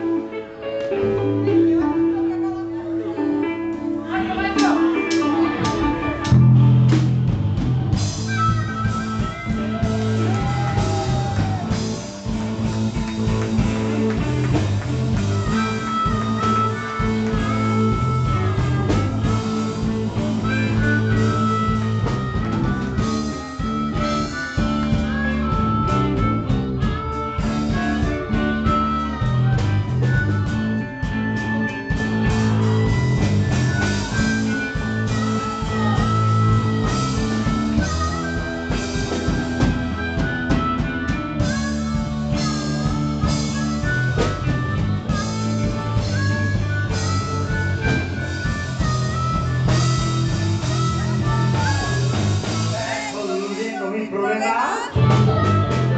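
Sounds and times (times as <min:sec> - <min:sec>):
bass: 0:00.0 - 0:55.9
electric guitar lead: 0:00.0 - 0:55.9
drum kit: 0:03.6 - 0:53.8, 0:55.0 - 0:55.9.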